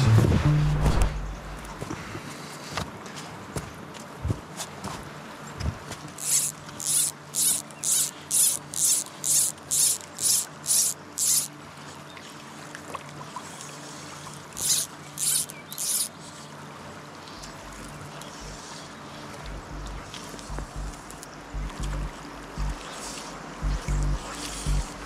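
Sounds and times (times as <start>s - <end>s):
fly line zipping hiss: 6.2s - 11.5s, 14.6s - 16.4s.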